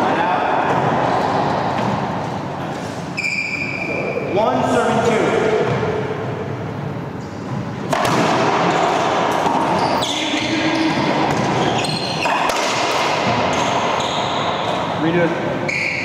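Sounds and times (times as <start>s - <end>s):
racquetball cracks echoing: 7.5s - 14.9s.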